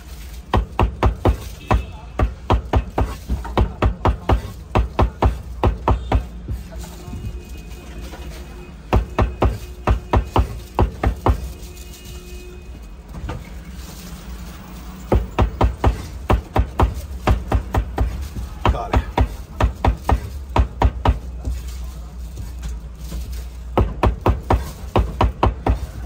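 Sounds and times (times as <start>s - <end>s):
cleaver chopping on wooden board: 0.5s - 6.7s, 8.9s - 11.5s, 15.1s - 21.7s, 23.7s - 26.0s.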